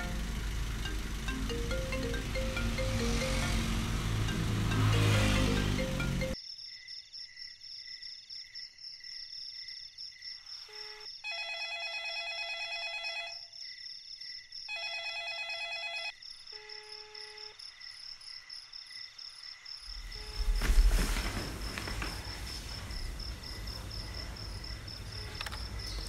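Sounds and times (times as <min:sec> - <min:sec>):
crickets chirping: 0:00.0 - 0:11.3, 0:16.2 - 0:26.0.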